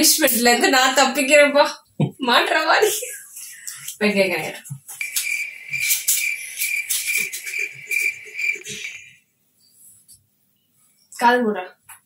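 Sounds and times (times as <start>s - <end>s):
cricket chirping: 5.0s - 9.1s.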